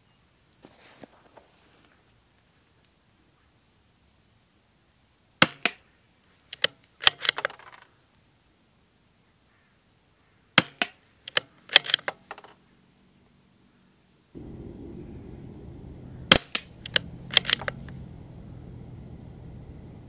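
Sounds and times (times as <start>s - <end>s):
rifle bolt metallic clicks: 6.5s - 7.9s, 10.6s - 12.6s, 16.3s - 18.0s
suppressed rifle shots: 14.4s - 18.3s.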